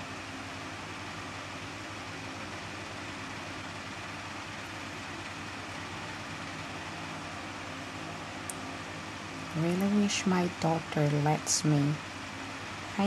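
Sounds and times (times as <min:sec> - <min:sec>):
low hum: 0:03.6 - 0:13.0.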